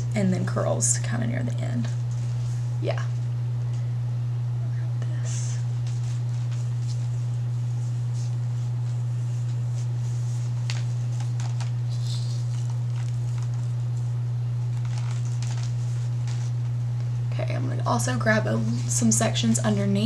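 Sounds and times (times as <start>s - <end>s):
low electrical hum: 0.0s - 20.0s
hair rustling and ticking: 5.8s - 14.1s, 14.7s - 17.2s.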